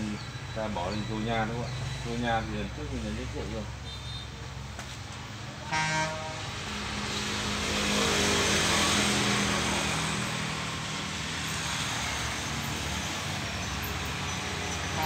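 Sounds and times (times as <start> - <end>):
broad rushing noise: 4.8 - 15.0.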